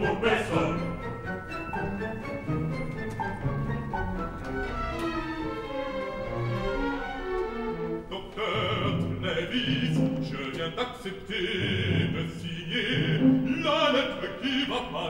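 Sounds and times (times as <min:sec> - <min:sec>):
man singing operatically: 0:00.0 - 0:01.1, 0:08.1 - 0:15.0
orchestra playing: 0:00.0 - 0:10.6, 0:11.5 - 0:15.0.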